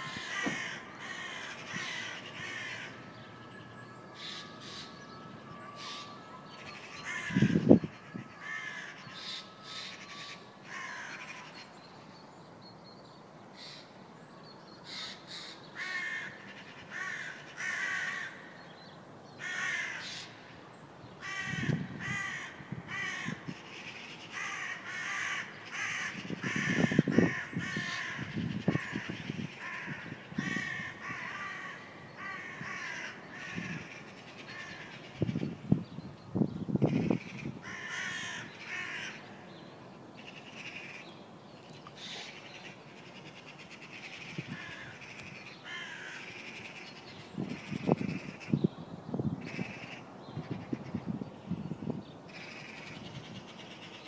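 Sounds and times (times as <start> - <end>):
crows cawing: 0.0 - 11.6, 14.9 - 18.6, 19.4 - 20.4, 21.2 - 35.5, 36.9 - 39.5, 40.2 - 41.1, 42.0 - 46.9, 49.5 - 51.1, 52.3 - 54.0.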